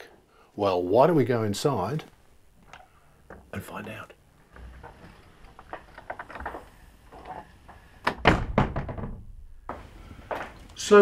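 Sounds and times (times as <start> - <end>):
screen door banging: 4.5 - 9.7
screen door knocks and rattles: 8.0 - 9.7.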